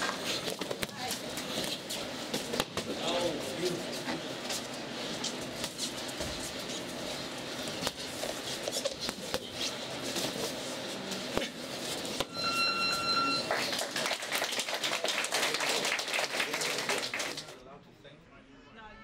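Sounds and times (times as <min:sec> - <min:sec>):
electronic timer beep: 0:12.2 - 0:13.5.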